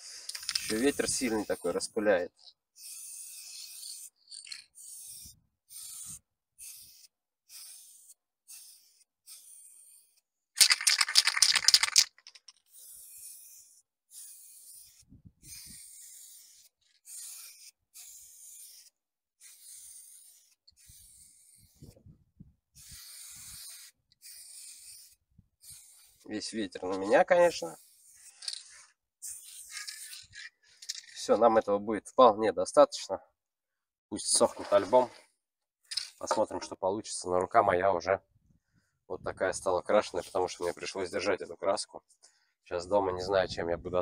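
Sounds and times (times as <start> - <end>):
spray can hissing: 2.8 - 11.9, 12.6 - 21.8, 22.8 - 26.3, 29.2 - 30.3.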